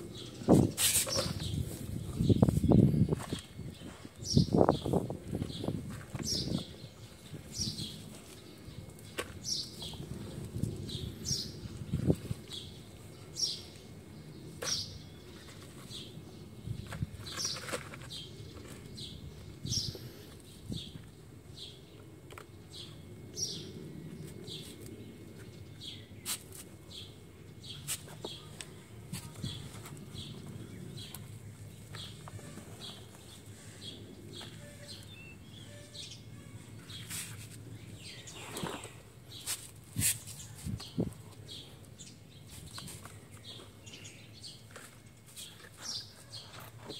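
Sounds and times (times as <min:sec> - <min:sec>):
bird chirping: 0:29.4 - 0:37.2.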